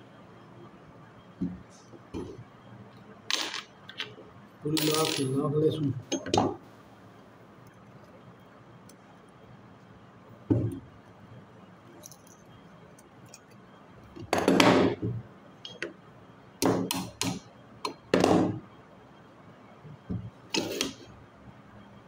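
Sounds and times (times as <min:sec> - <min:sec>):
pliers and metal parts clinking: 0:12.0 - 0:13.6.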